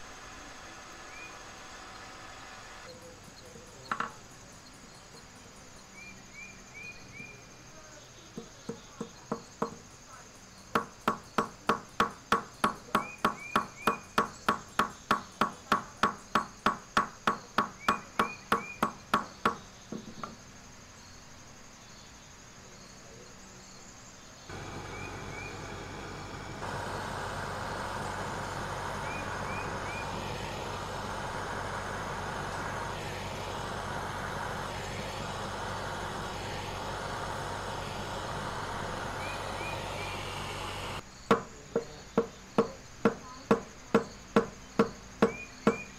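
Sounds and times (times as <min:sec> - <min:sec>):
gas torch hissing: 0:24.5 - 0:41.0.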